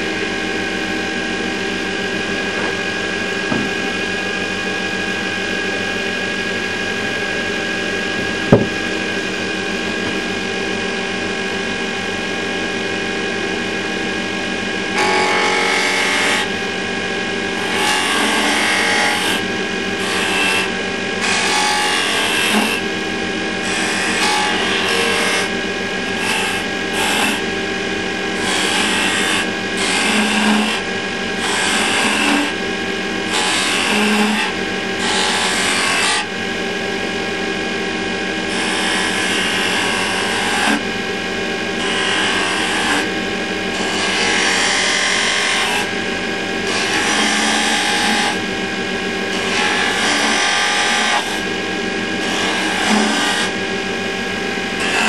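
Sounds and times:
wood lathe motor hum: 0:00.0 - 0:55.0
sharp knock: 0:03.5 - 0:03.8, 0:08.5 - 0:08.8
chisel scraping spinning wood: 0:28.4 - 0:30.8, 0:52.3 - 0:53.5.

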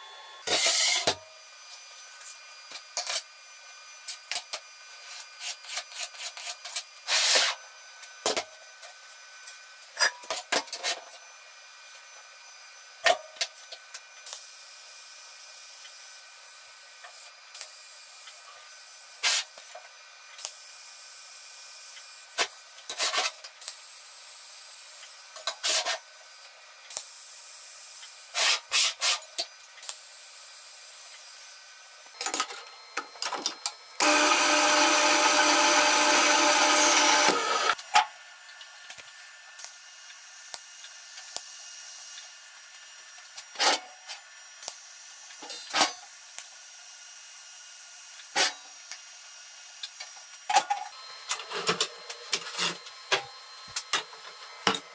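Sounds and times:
bandsaw cutting steel: 0:00.4 - 0:01.2, 0:30.7 - 0:37.8
tools scratching and clicking on steel: 0:05.2 - 0:07.6
welding arc hissing: 0:14.3 - 0:19.8, 0:20.4 - 0:32.2, 0:39.6 - 0:43.6, 0:44.6 - 0:50.4.

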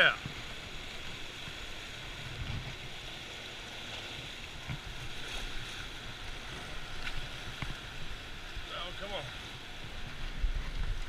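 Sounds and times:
turbulent water rushing: 0:00.0 - 0:11.0.

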